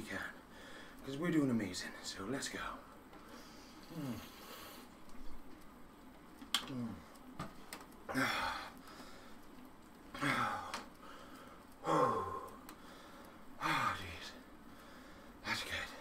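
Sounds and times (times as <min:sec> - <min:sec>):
man breathing hard: 0:00.5 - 0:01.0, 0:10.2 - 0:13.9, 0:14.7 - 0:15.4.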